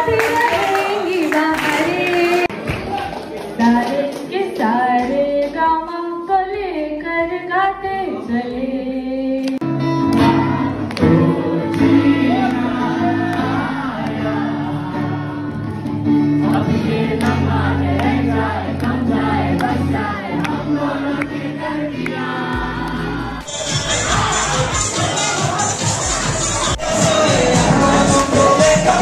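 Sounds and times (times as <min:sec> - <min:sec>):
woman singing into microphone: 0:00.0 - 0:02.5, 0:03.6 - 0:22.8
group of voices singing: 0:08.0 - 0:29.0.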